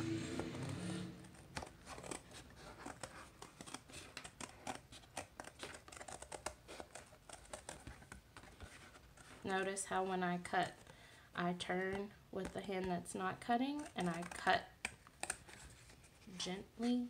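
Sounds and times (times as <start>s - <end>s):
scissors snipping cardboard: 0.3s - 9.4s, 13.6s - 15.6s.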